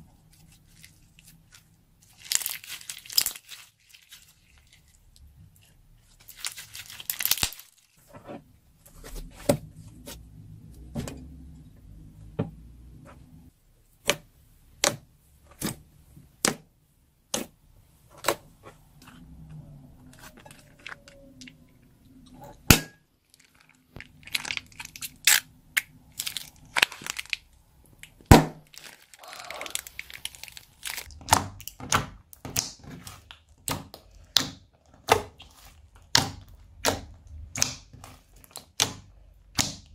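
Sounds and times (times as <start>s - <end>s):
slime popping and crackling: 2.0s - 4.8s, 6.2s - 7.9s, 22.7s - 39.9s.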